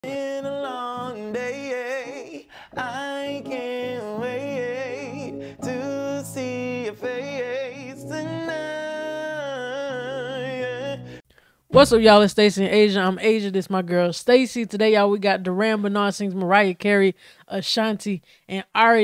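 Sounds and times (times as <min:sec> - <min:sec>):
man singing in head voice: 0:00.0 - 0:11.2
electronic keyboard chords: 0:02.8 - 0:12.4.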